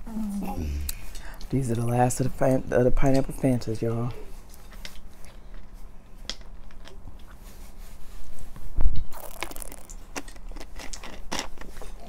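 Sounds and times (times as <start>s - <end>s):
drinking and chewing mouth sounds: 0.3s - 1.5s, 9.0s - 12.0s.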